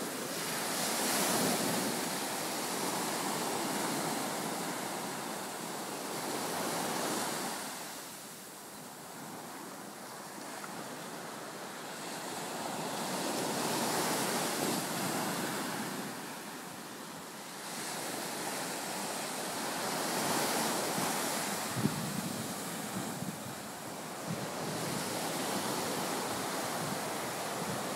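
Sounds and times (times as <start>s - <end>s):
ocean waves breaking: 0.0s - 27.9s
wind buffeting microphone: 17.6s - 27.9s.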